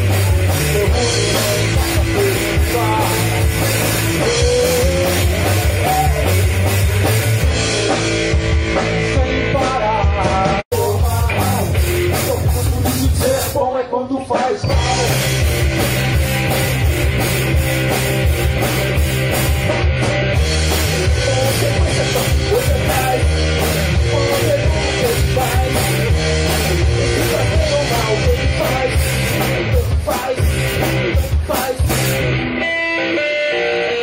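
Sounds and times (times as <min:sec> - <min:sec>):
electric bass: 0:00.0 - 0:13.7, 0:14.4 - 0:34.0
drum kit: 0:00.0 - 0:32.7
electric guitar: 0:00.0 - 0:34.0.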